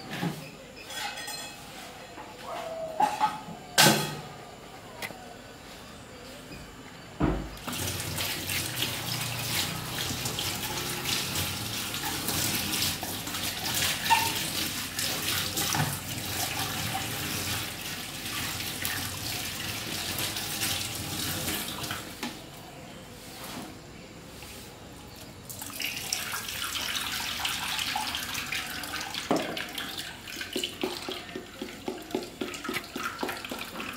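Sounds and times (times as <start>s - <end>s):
thump: 7.2s - 7.6s
tap water running into a sink: 7.6s - 22.2s, 25.5s - 33.9s.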